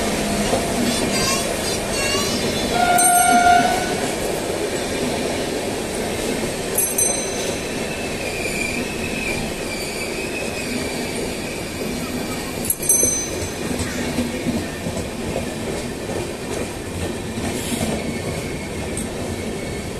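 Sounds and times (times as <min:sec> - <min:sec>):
train wheels rumbling on rail: 0:00.0 - 0:19.9
train horn blast: 0:02.7 - 0:04.2.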